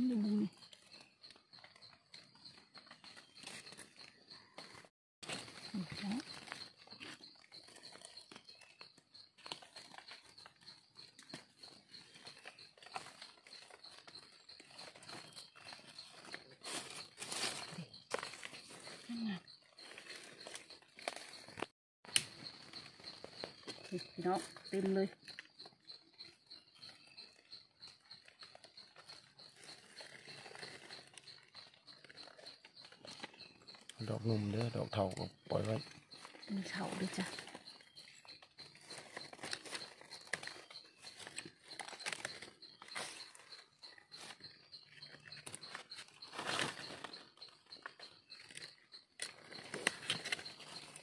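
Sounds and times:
faint high-pitched pulsed chirping: 0.0s - 51.0s
dry leaves rustling: 3.0s - 24.0s, 28.9s - 31.4s, 35.9s - 44.4s, 45.0s - 51.0s.

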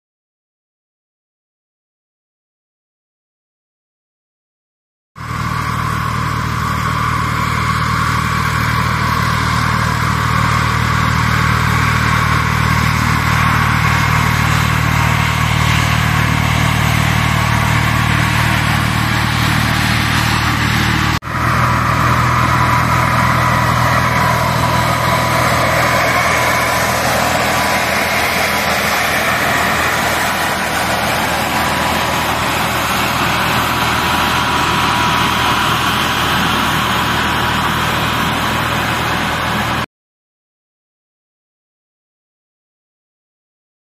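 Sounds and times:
sprayer fan hiss and whine: 5.2s - 39.8s
tractor engine drone: 5.2s - 39.9s.

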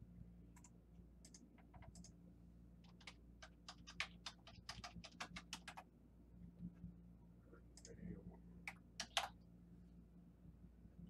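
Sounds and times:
computer keyboard typing: 0.6s - 2.2s, 2.8s - 5.9s, 8.6s - 9.4s.

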